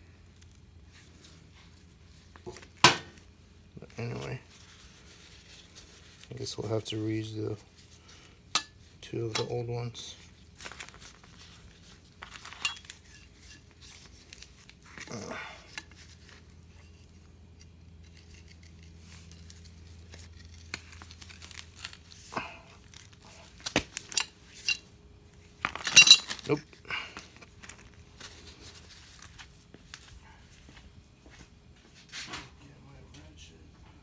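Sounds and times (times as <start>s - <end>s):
metal parts clinking: 8.5s - 9.6s, 12.2s - 13.2s, 24.0s - 24.8s, 25.7s - 26.5s.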